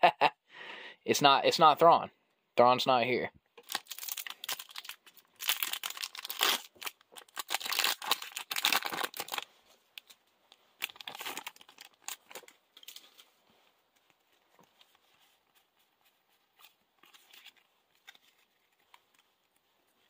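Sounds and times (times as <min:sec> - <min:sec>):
foil wrapper crinkling: 0:03.6 - 0:10.2, 0:10.8 - 0:13.4.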